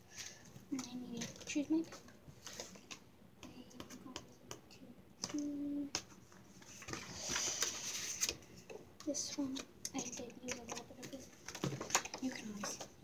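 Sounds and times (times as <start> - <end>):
paper rustling: 0.1 - 3.0, 5.2 - 8.7.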